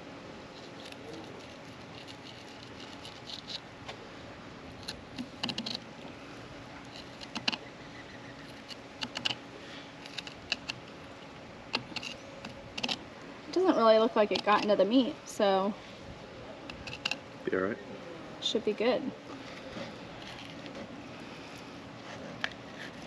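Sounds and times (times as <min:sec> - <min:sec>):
knife clicking and scraping: 0:11.8 - 0:13.0.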